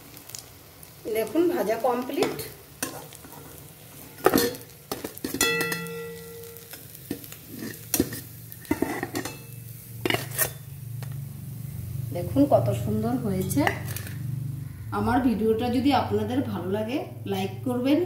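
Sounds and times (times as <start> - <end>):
hot oil sizzling: 0.0 - 18.0
spatula scraping a frying pan: 2.2 - 10.7.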